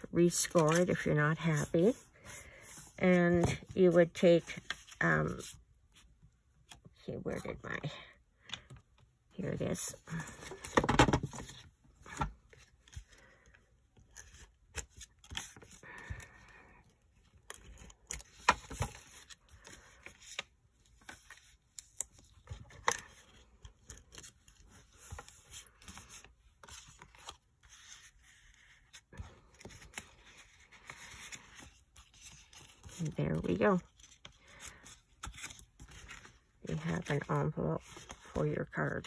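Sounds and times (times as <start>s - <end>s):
paper rustling and scraping: 0.0s - 5.6s, 17.4s - 39.0s.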